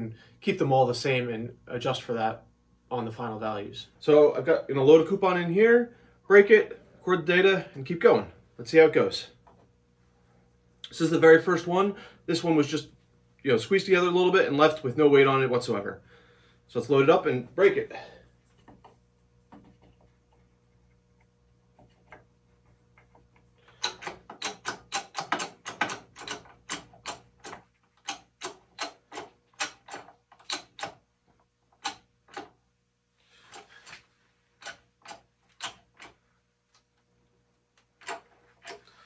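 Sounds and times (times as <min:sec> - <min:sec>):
bottle jack pumping clicks: 0:23.7 - 0:31.0.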